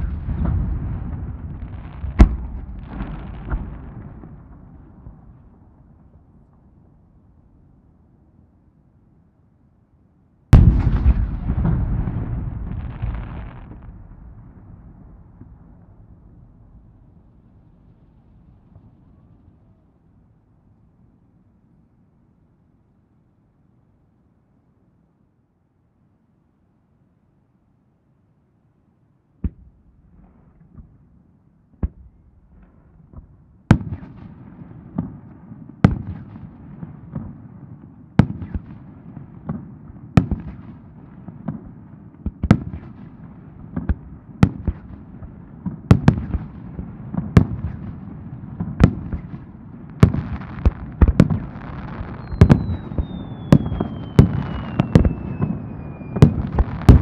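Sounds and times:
fireworks booming: 0.0s - 6.8s, 10.5s - 19.4s, 31.8s - 57.0s
fireworks crackling rumble: 0.0s - 7.6s, 10.5s - 20.1s, 31.8s - 57.0s
falling firework whistle: 51.4s - 57.0s.

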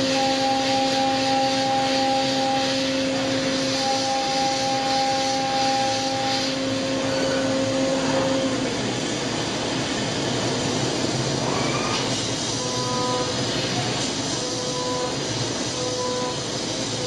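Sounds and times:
milling machine spindle whine: 0.0s - 17.0s
hiss of air: 0.1s - 17.0s.

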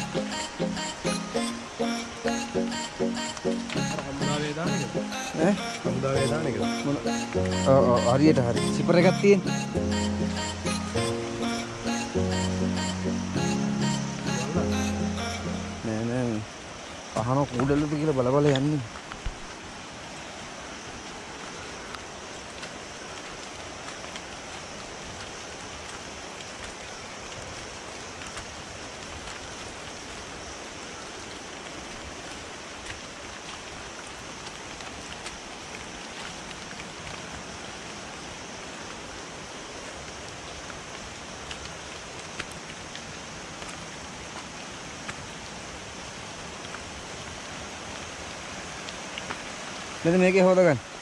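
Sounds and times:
footsteps on path: 0.0s - 14.8s.

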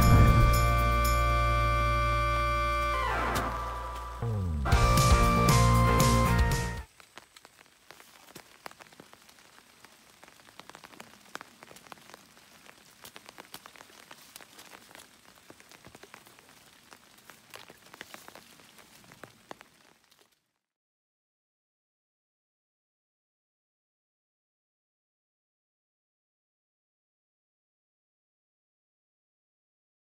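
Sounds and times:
background music: 0.0s - 6.9s
faint ticks and crackles: 6.8s - 20.6s.

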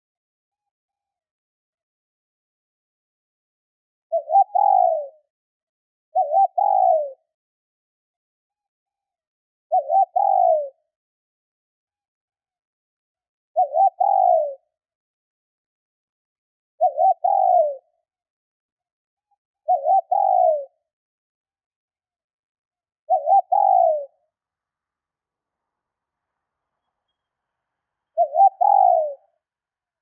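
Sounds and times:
dove cooing: 4.1s - 5.2s, 6.2s - 7.2s, 9.7s - 10.8s, 13.6s - 14.6s, 16.8s - 17.8s, 19.7s - 20.8s, 23.1s - 24.2s, 28.2s - 29.3s.

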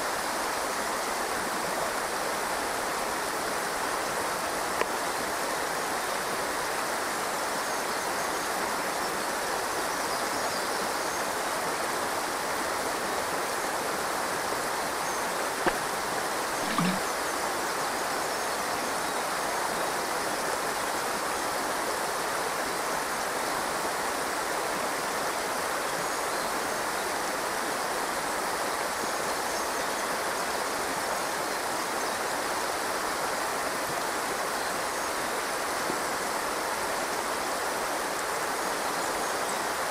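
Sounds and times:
river water rushing over rocks: 10.8s - 18.1s
sharp click: 15.7s - 15.9s, 16.6s - 17.0s.

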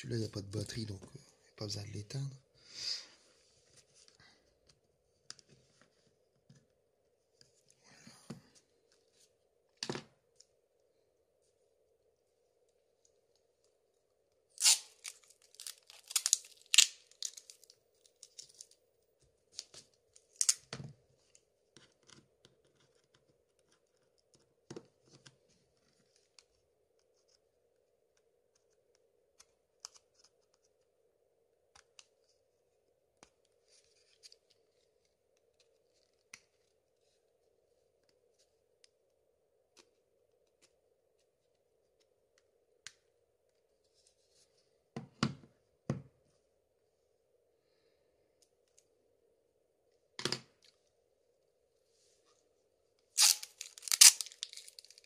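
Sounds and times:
faint steady hum: 0.0s - 55.0s.

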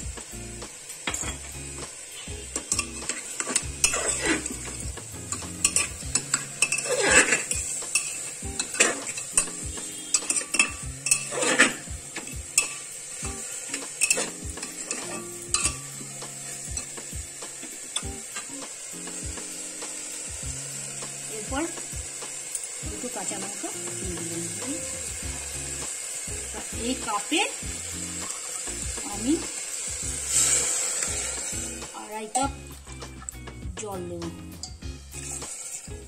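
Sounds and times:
food sizzling: 0.0s - 36.0s
metal spoon scraping pot: 2.6s - 4.7s, 5.3s - 12.9s, 13.8s - 15.8s.

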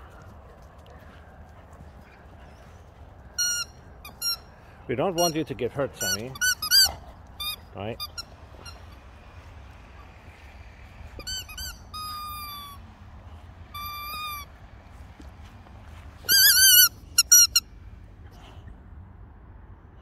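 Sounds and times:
squeaky toy squeaking: 3.4s - 4.5s, 5.2s - 9.0s, 11.1s - 12.8s, 13.7s - 14.5s, 16.2s - 17.6s.

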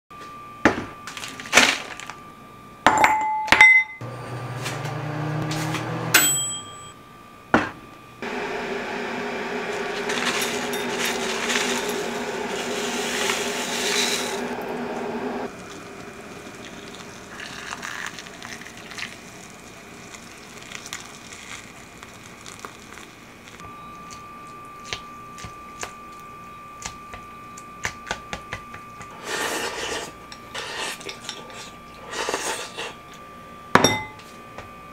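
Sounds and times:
ceramic bowl clinking: 2.9s - 4.0s, 33.8s - 34.3s.

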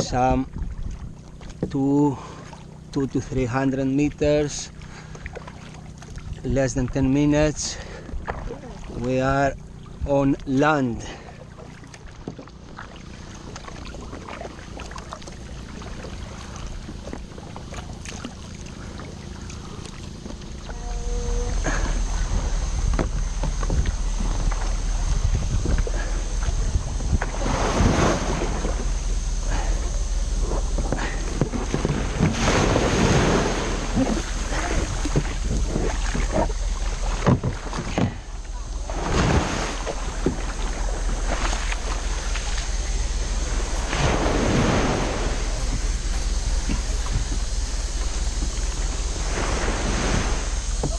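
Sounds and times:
small waves washing on sand: 0.0s - 50.9s
steady low rumble: 0.0s - 50.9s
paddle strokes splashing water: 0.5s - 7.0s, 7.6s - 50.9s
wind buffeting microphone: 15.5s - 50.9s.

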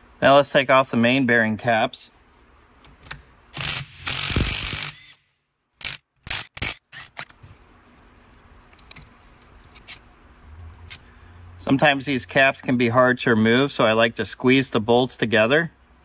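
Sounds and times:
impact wrench running: 3.5s - 5.2s, 5.8s - 7.4s.

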